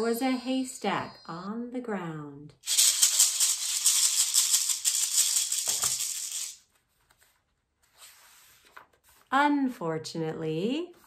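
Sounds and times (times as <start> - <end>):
shaker rattling: 2.6 - 6.7.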